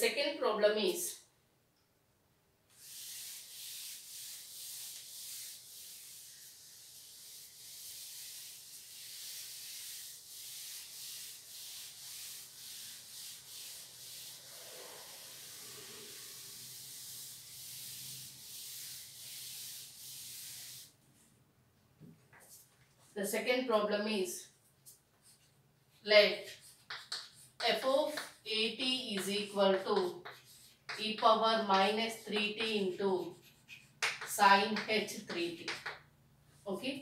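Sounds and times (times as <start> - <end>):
duster rubbing on chalkboard: 2.7 - 21.0, 26.3 - 36.0.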